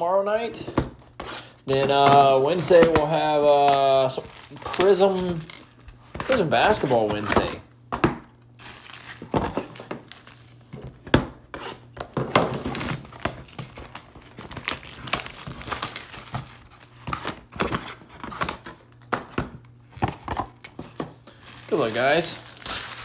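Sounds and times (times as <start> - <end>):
packaging crinkling and tearing: 1.7 - 7.6, 8.6 - 10.7, 12.5 - 19.1, 21.3 - 23.0.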